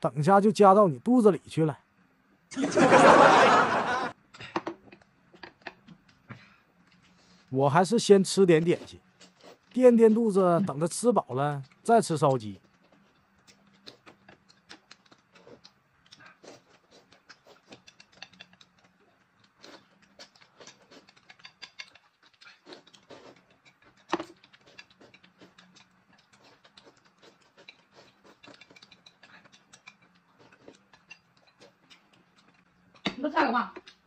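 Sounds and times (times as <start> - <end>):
noodles slurped: 11.6 - 32.6
chopsticks clicking on plate: 17.2 - 18.9, 20.0 - 23.0, 23.8 - 34.0.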